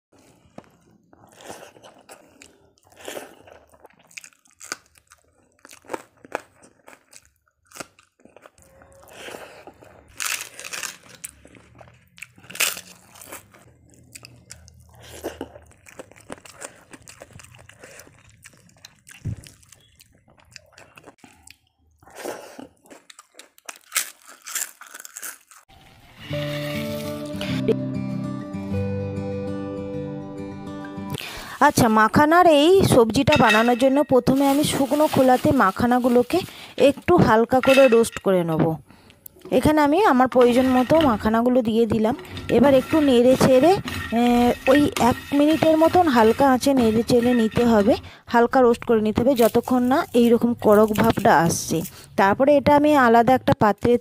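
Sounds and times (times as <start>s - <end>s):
person chewing food: 0.2s - 26.0s
crisp crunches: 1.2s - 20.0s, 22.8s - 25.6s, 34.3s - 36.8s.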